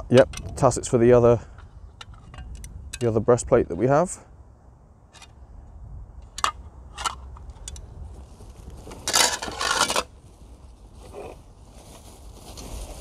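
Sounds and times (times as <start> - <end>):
steel armour plates clinking: 2.0 - 3.2, 6.2 - 7.8, 9.1 - 10.1
packaging crinkling and scraping: 8.8 - 10.1.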